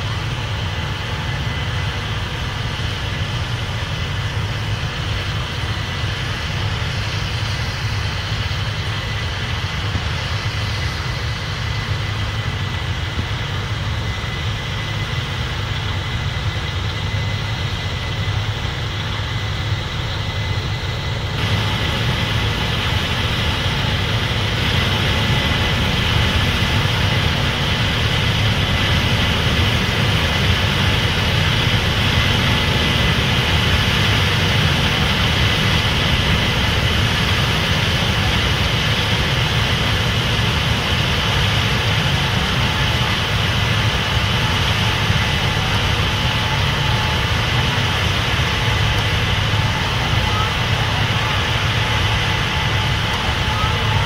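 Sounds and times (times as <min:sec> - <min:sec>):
diesel farm machinery running: 0:00.0 - 0:54.0.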